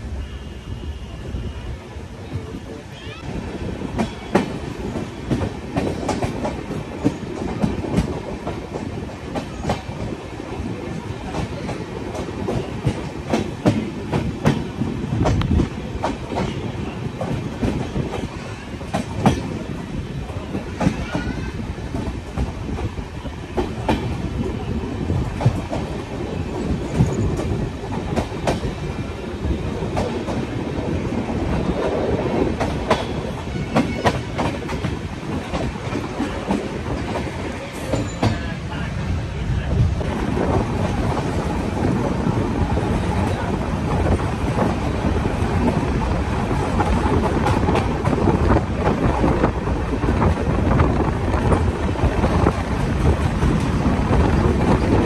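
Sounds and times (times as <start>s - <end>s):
train wheels rumbling on rails: 0.0s - 55.0s
clickety-clack over rail joints: 2.3s - 38.8s, 39.6s - 55.0s.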